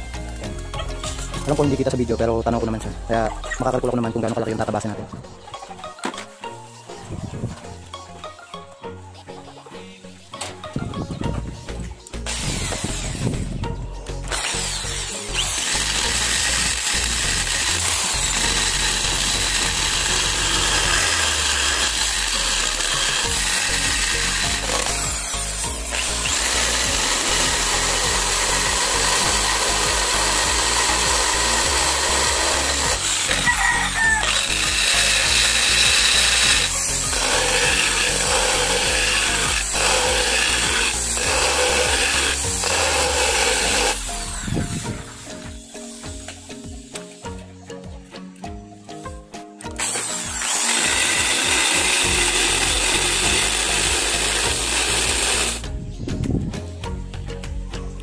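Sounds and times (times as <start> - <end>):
electric drill grinding: 12.2 - 13.6, 14.2 - 47.3, 49.7 - 55.7.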